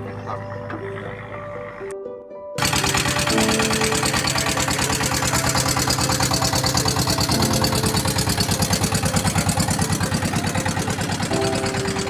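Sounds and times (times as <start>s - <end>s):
boat engine chugging: 2.6s - 12.0s.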